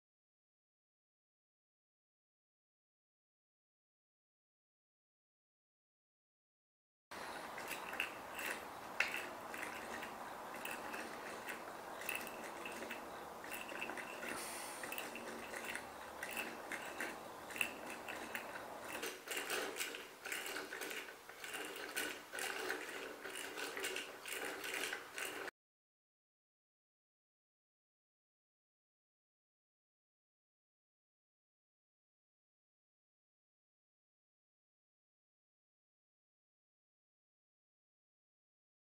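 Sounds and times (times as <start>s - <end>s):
wooden mechanism clicking: 7.2s - 25.5s
faint hiss: 14.4s - 14.9s.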